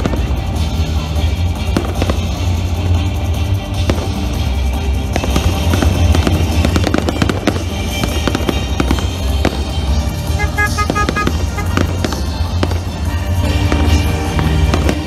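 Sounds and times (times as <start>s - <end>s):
fireworks bangs and crackles: 0.0s - 15.0s
music playing: 0.0s - 15.0s.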